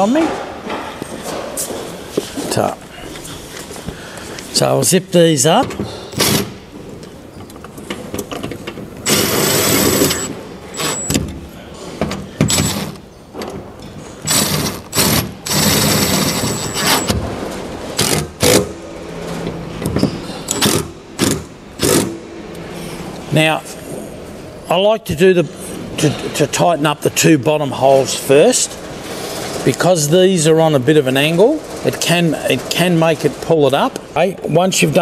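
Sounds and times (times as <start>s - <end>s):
cordless drill driving bolts: 6.1s - 6.6s, 9.0s - 11.3s, 12.4s - 13.0s, 14.2s - 17.2s.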